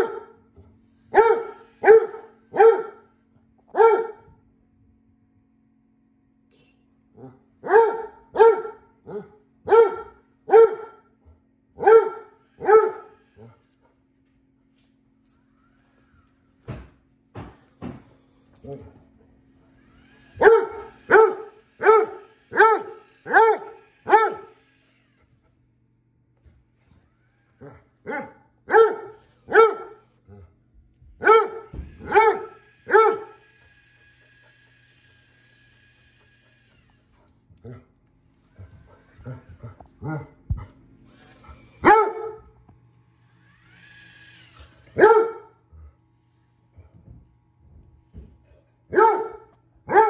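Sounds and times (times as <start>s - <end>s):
dog barking: 0.0s - 0.4s, 1.1s - 3.1s, 3.7s - 4.3s, 7.6s - 11.1s, 11.8s - 13.2s, 20.4s - 24.5s, 27.6s - 30.1s, 31.2s - 33.4s, 41.8s - 42.5s, 45.0s - 45.6s, 48.9s - 50.0s
dog barking deeply: 48.9s - 50.0s.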